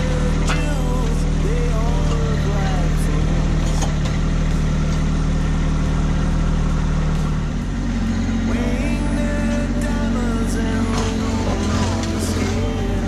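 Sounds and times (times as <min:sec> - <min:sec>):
tractor diesel engine running: 0:00.0 - 0:13.0.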